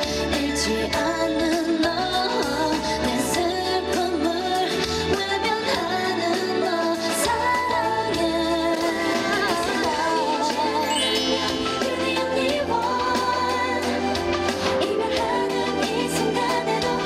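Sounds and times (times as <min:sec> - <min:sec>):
woman singing into a microphone: 0:00.0 - 0:17.0
band accompaniment: 0:05.7 - 0:17.0.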